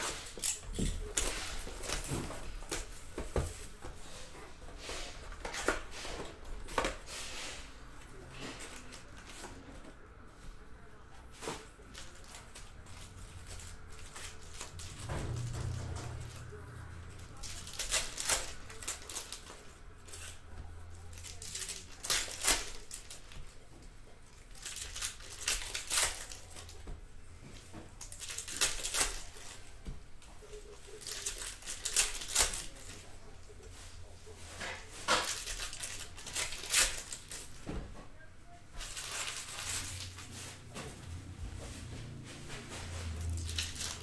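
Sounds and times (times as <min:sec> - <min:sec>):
foil wrappers crinkling and tearing: 0:00.0 - 0:03.9, 0:11.4 - 0:23.6, 0:24.3 - 0:26.9, 0:28.0 - 0:29.8, 0:30.4 - 0:37.8, 0:38.7 - 0:40.5, 0:43.0 - 0:44.0.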